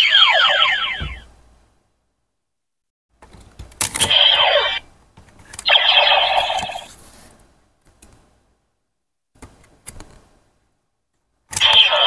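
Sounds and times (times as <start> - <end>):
toy belt electronic sound effect: 4.1 - 4.8, 5.6 - 6.9, 11.6 - 12.0.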